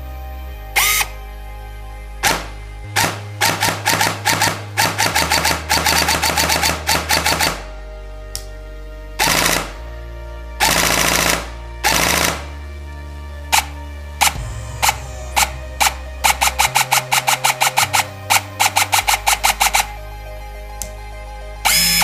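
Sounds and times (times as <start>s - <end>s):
background music: 0.0s - 22.0s
airsoft rifle firing: 2.2s - 7.6s, 13.6s - 19.9s.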